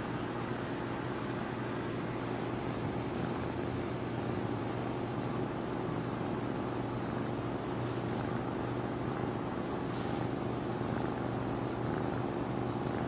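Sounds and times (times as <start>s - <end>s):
kitten purring: 0.4s - 1.6s, 2.2s - 2.5s, 3.1s - 3.5s, 4.2s - 4.6s, 5.2s - 5.5s, 6.1s - 6.4s, 7.0s - 13.0s.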